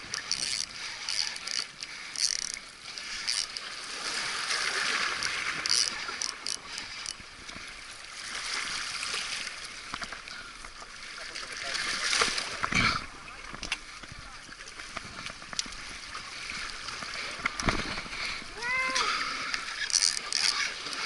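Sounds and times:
sea waves splashing against rocks: 2.6s - 7.0s.

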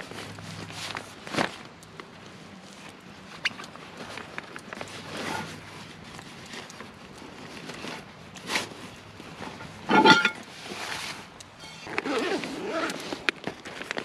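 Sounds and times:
gear shifting inside bag: 0.0s - 14.0s
backpack fabric rustling: 3.9s - 14.0s
scrape: 4.9s - 6.6s, 7.4s - 13.2s.

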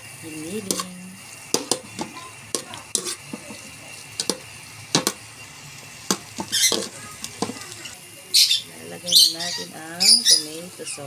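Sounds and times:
faint sizzle: 0.0s - 11.0s
metal spoon scraping a pot: 0.6s - 5.2s, 6.1s - 7.6s.

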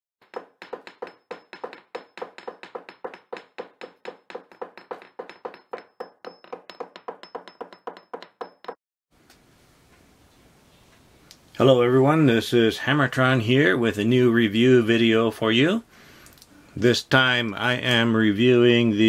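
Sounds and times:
sharp knocks: 0.2s - 8.8s.

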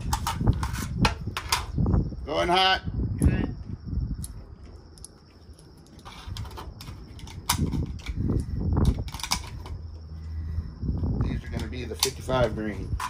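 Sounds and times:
rifle metallic clicks and clacks: 11.6s - 12.2s.

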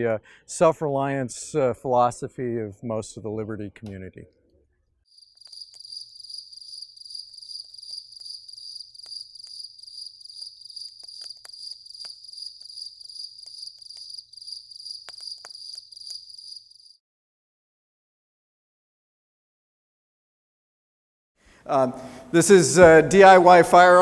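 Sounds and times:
crickets chirping: 5.1s - 17.0s.

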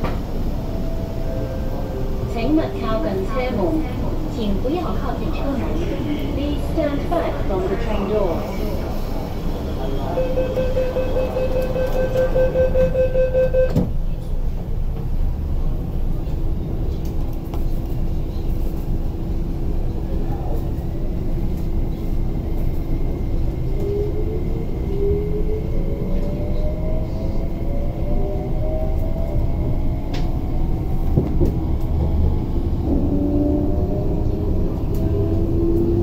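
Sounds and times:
train rumbling: 0.0s - 36.0s
door warning tone: 10.1s - 13.9s
train doors closing thud: 13.6s - 14.0s.

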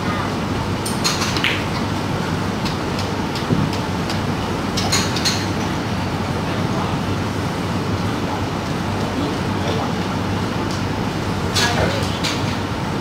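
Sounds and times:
room noise rumble and hum: 0.0s - 13.0s.

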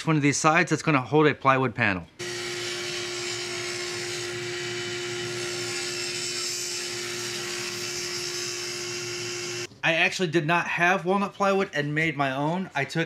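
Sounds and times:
table saw cutting wood: 2.2s - 9.7s.

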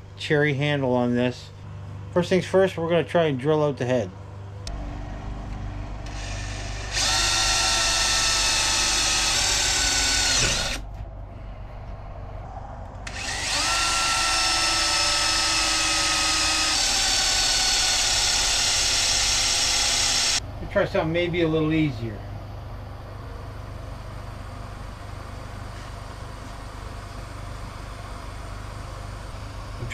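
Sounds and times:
cordless drill boring: 6.0s - 10.8s, 13.1s - 20.4s, 24.2s - 29.9s.

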